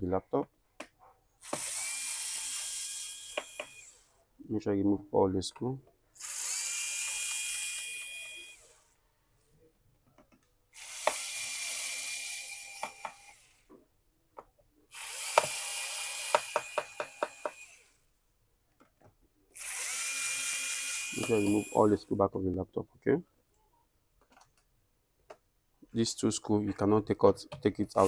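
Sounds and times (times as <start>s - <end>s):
electric screwdriver whirring: 1.4s - 4.1s, 6.2s - 9.0s, 10.8s - 13.6s, 14.9s - 18.0s, 19.6s - 22.0s.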